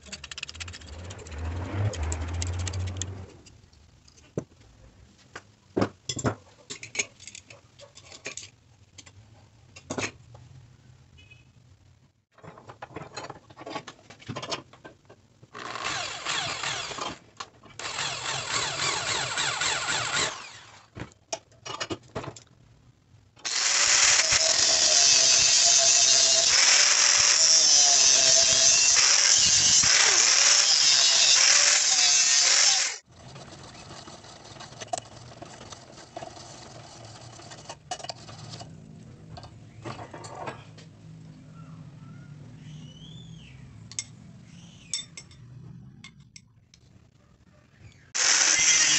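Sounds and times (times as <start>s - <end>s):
angle grinder cutting steel: 15.6s - 17.2s, 17.8s - 20.8s, 23.4s - 33.1s, 48.2s - 48.9s.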